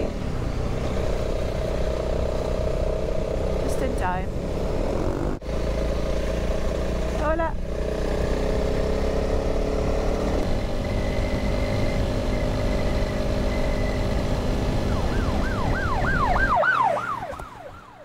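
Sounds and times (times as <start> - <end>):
motorcycle engine riding: 0.0 - 16.5
police siren yelping: 14.8 - 18.0.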